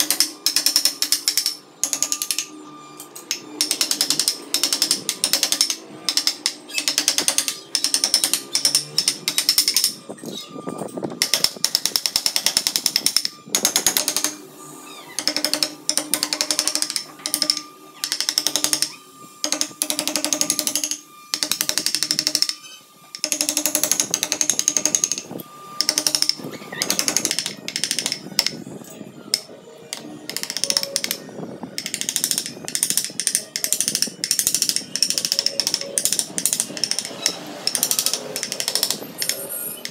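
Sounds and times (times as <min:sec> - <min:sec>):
wooden mallet tapping chisel: 0:00.0 - 0:02.5, 0:03.3 - 0:10.0, 0:15.2 - 0:28.5, 0:29.3 - 0:31.2, 0:31.8 - 0:39.9.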